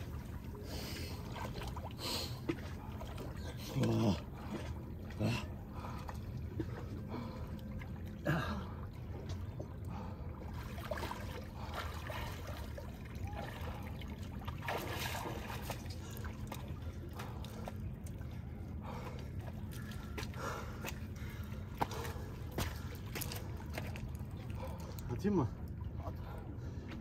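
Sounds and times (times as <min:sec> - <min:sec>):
sea water splashing and lapping: 0:00.0 - 0:27.0.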